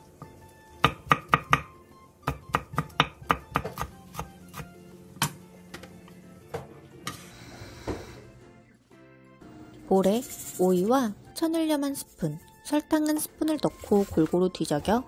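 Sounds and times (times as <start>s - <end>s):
knife chopping on wooden board: 0.8s - 1.7s, 2.3s - 5.4s.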